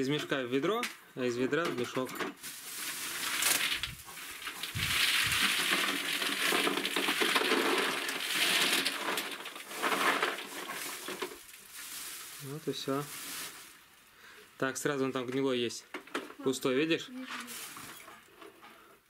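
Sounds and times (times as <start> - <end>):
walnuts pouring into plastic bucket: 2.4 - 13.8
sack rustling: 2.4 - 13.9, 17.2 - 18.2.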